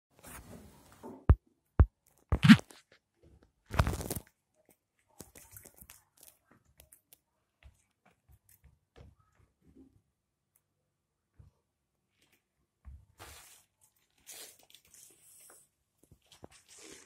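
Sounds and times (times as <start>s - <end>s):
crunchy rustle: 3.7s - 4.3s.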